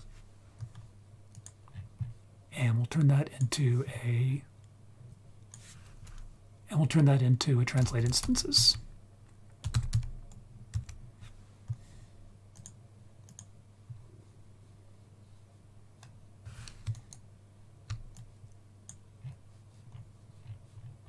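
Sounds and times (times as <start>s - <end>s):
keyboard and mouse clicks: 12.5s - 13.5s.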